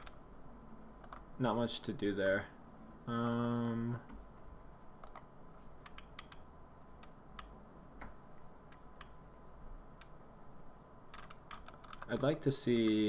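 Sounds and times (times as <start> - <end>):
computer clicks: 1.0 - 1.3, 3.1 - 3.8, 5.0 - 9.2, 11.1 - 12.2.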